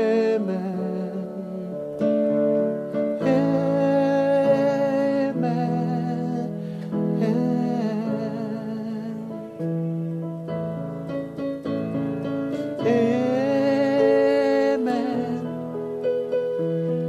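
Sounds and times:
man singing worship song: 0:00.0 - 0:01.8, 0:03.0 - 0:09.6, 0:12.6 - 0:15.8
sustained keyboard chords: 0:00.0 - 0:17.0.

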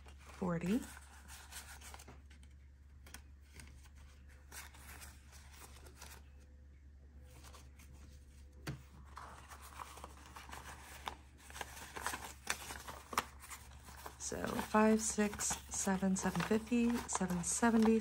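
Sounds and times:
banknotes rustling and flicking: 0:07.3 - 0:18.0.

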